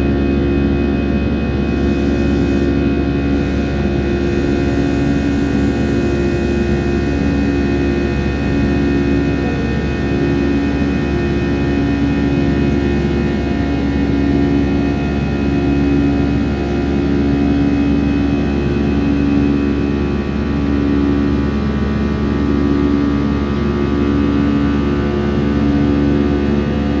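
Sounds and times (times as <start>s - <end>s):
jet engines droning in cabin: 0.0s - 27.0s.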